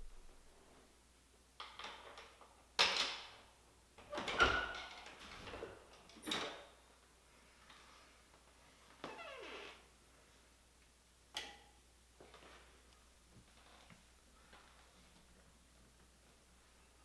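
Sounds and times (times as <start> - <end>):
door squeaking: 9.0 - 9.8.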